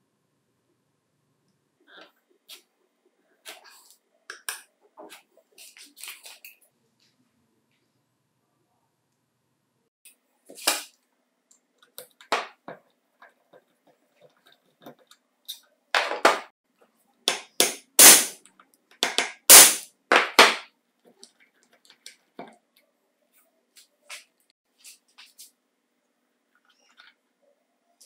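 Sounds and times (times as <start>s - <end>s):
hammer striking impact driver: 17.3s - 18.4s, 19.0s - 19.8s.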